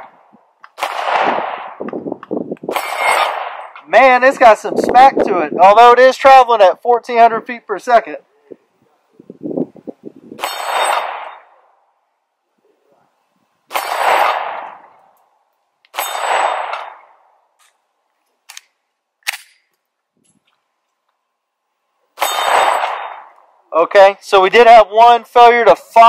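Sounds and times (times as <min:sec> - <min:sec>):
pistol shots: 0:00.0 - 0:01.9, 0:02.7 - 0:03.8, 0:10.4 - 0:11.6, 0:13.7 - 0:15.0, 0:15.9 - 0:17.2, 0:22.2 - 0:23.4
steel target ringing: 0:10.4 - 0:11.5, 0:15.9 - 0:17.0, 0:22.2 - 0:23.3.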